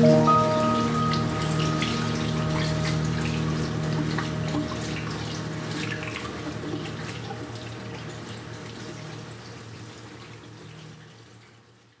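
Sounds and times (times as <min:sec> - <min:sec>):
steady low hum: 0:00.0 - 0:09.4.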